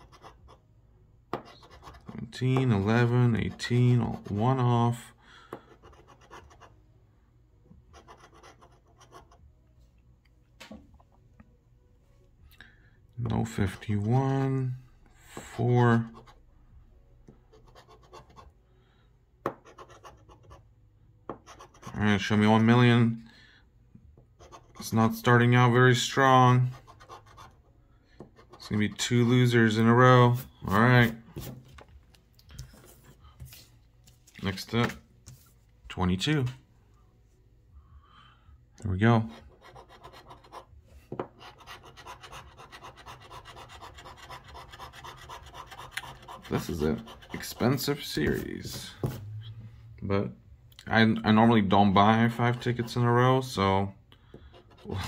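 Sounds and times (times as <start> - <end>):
metal tool scraping scratch ticket: 41.4 - 47.9.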